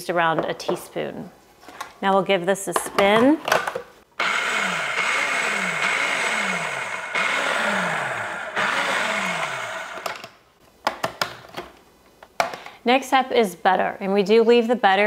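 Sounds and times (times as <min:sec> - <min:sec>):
food processor spinning: 0:04.2 - 0:10.3.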